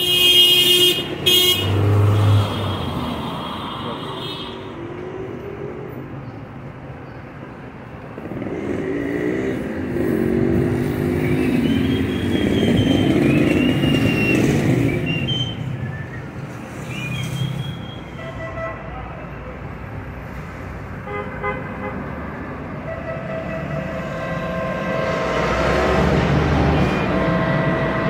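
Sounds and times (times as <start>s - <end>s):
street traffic: 0.0s - 28.0s
vehicle engine passing: 23.8s - 28.0s.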